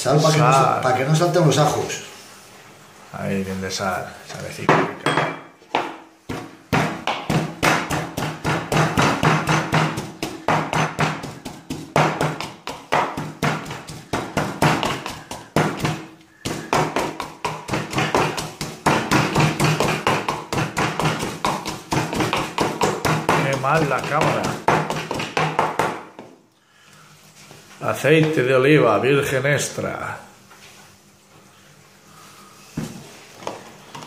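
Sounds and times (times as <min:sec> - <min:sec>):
pestle pounding in wooden mortar: 0:04.7 - 0:26.3.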